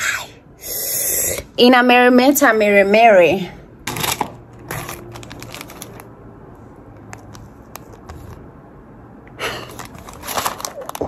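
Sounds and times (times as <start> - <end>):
packaging rustling and clicking: 3.9 - 6.1, 9.7 - 11.0
packaging crinkle: 4.0 - 6.1, 9.6 - 11.0.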